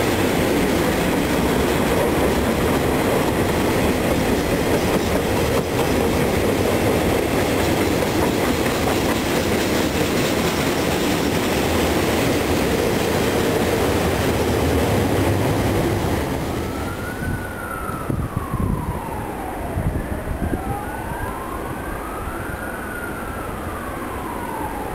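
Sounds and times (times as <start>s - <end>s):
freight train wheels rumbling: 0.0s - 19.3s
emergency siren wailing: 0.1s - 24.9s.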